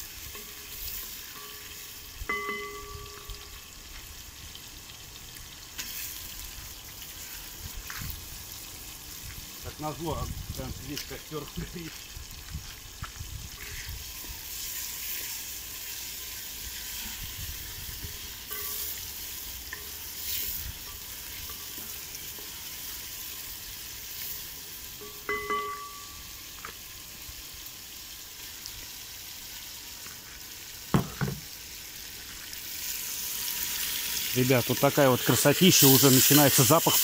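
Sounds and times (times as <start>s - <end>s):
meat frying in oil: 0.0s - 37.0s
sharp knock: 31.0s - 31.4s.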